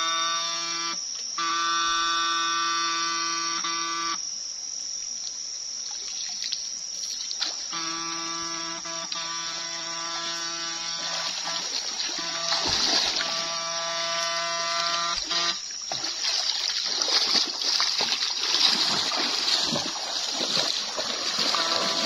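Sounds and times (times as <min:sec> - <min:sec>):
water splashing and sloshing: 0:05.8 - 0:08.2, 0:09.1 - 0:22.0
electrical hum of inverter: 0:07.7 - 0:16.0.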